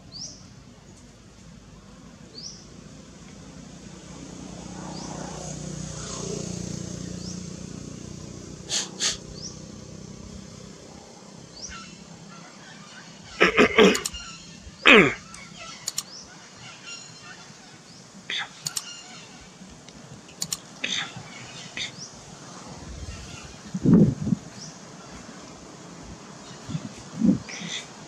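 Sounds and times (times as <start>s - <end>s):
loud vocal burst: 8.7s - 9.2s, 14.9s - 15.3s
sharp clicks: 13.8s - 14.3s, 15.3s - 16.2s, 18.6s - 18.9s, 19.8s - 20.8s.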